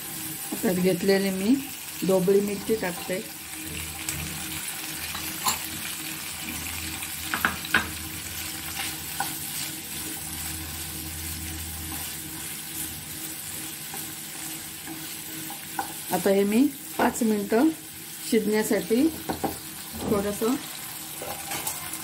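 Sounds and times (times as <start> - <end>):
vegetables sizzling in oil: 0.0 - 22.0
spatula knocking on pan: 7.3 - 8.0, 19.2 - 20.2.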